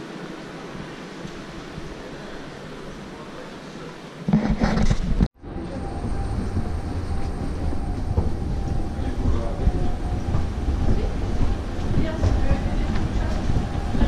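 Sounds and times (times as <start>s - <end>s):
footsteps of people walking: 4.4s - 14.0s
faint steady whine: 5.3s - 14.0s.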